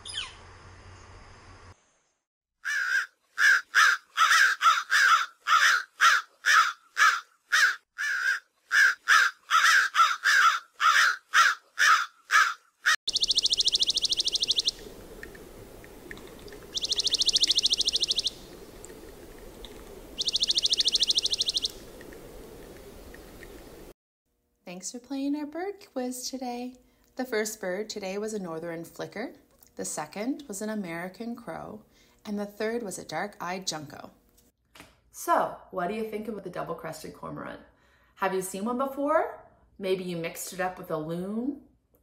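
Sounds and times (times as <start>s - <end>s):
crows cawing: 2.6s - 13.0s.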